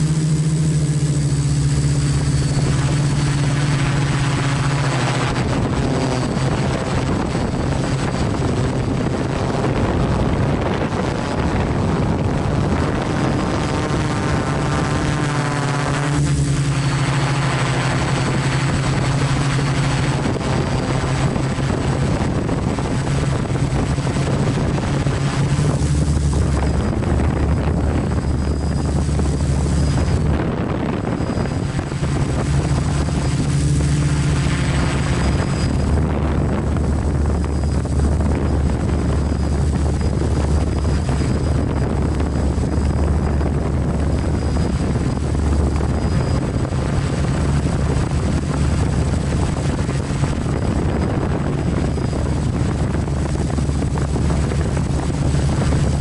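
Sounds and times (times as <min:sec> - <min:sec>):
drone motors buzzing: 0:00.0 - 0:56.0.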